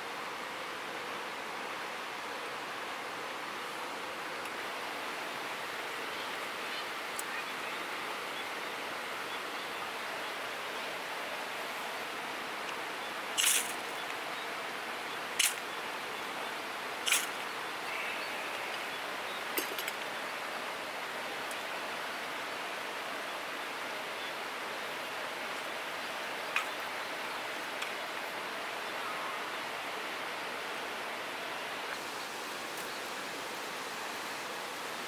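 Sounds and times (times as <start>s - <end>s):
river rushing: 0.0s - 35.0s
small clicks: 13.4s - 14.2s, 15.4s - 15.6s, 17.0s - 17.4s.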